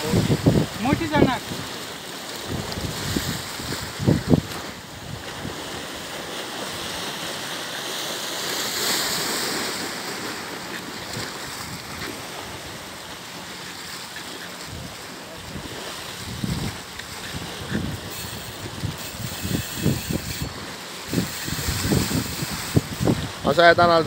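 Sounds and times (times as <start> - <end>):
wind buffeting microphone: 0.0 - 1.8, 2.4 - 6.0, 14.6 - 24.0
waves washing against wall: 0.0 - 24.0.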